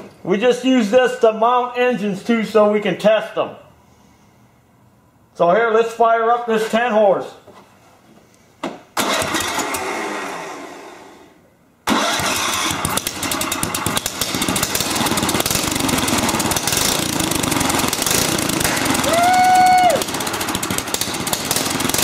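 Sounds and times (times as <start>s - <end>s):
small engine running loudly: 12.4s - 22.0s.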